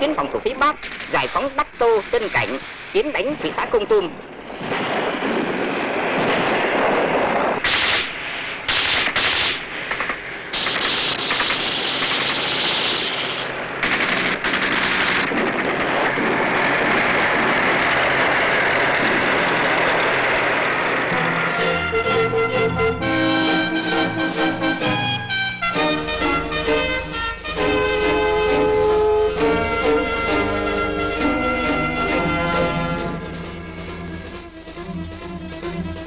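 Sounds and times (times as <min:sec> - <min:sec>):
machine-gun fire: 0:00.8 - 0:01.3, 0:07.6 - 0:21.1.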